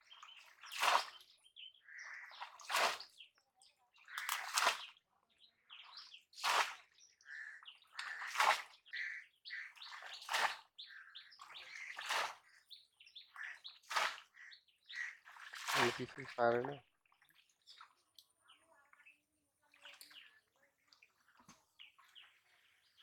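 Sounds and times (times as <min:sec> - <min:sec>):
fish trap splashing into water: 0:00.7 - 0:01.2, 0:02.5 - 0:03.1, 0:04.2 - 0:04.9, 0:06.4 - 0:06.8, 0:13.9 - 0:14.3, 0:15.4 - 0:16.6.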